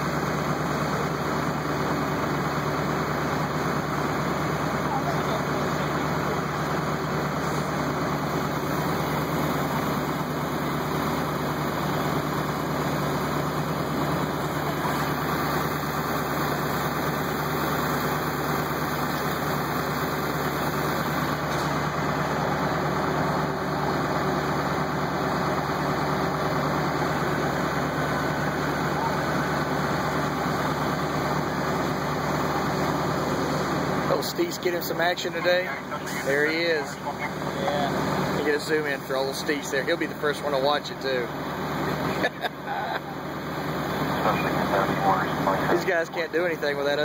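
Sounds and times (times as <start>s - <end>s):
fire engine idling: 0.0s - 47.0s.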